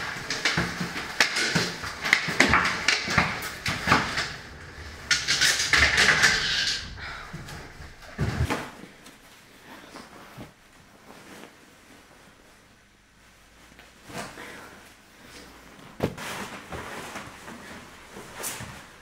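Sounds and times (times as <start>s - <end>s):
skis and poles clattering: 0.0s - 9.0s
clothing and gloves rustling: 0.0s - 19.0s
scraping rustle: 0.0s - 19.0s
heavy thump: 2.5s - 8.9s.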